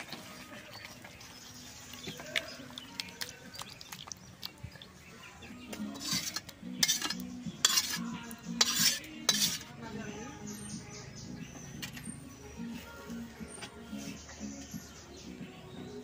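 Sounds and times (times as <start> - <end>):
spoon scraping metal wok: 5.8 - 9.8.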